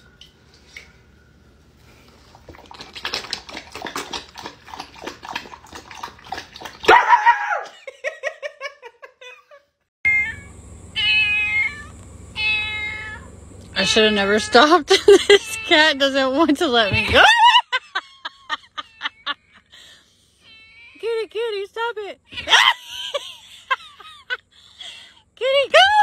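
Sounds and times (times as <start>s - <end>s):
person lapping and slurping: 2.0s - 6.9s
bark-like shout: 6.8s - 7.7s
kitten meowing: 10.1s - 14.6s.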